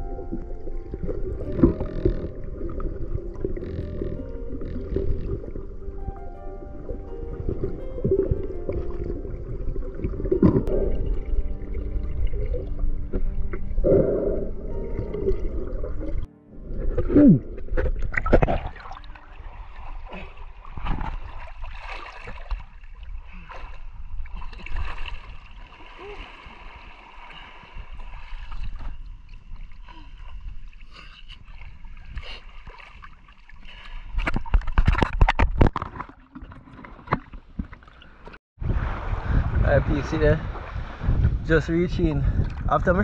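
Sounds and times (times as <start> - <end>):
water splashing around wading person: 16.9 - 41.4.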